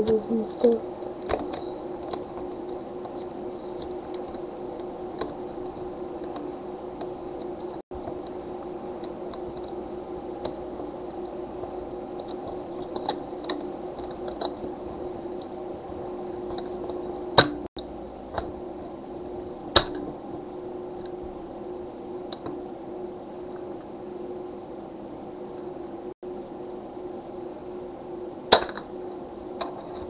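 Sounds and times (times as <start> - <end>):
low hum: 0.0 - 30.0.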